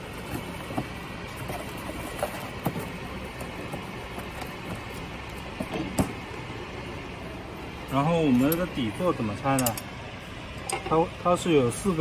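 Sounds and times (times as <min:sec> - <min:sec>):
workshop hum: 0:00.0 - 0:12.0.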